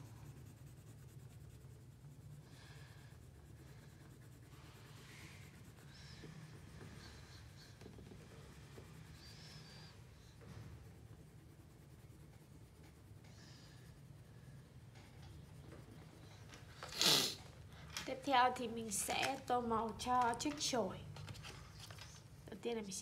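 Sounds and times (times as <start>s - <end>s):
crayon scribbling on paper: 0.0s - 16.4s.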